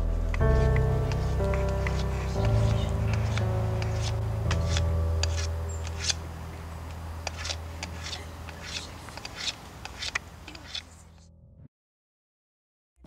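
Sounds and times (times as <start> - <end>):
low bass soundtrack music: 0.0 - 10.4.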